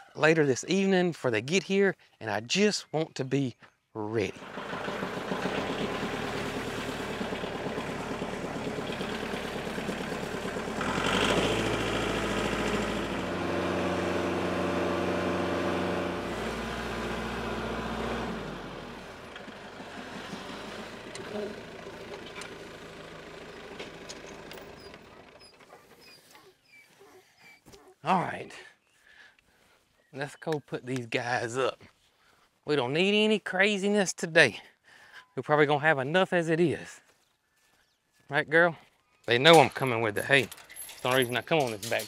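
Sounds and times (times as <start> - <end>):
tractor diesel engine running: 4.2 - 25.9.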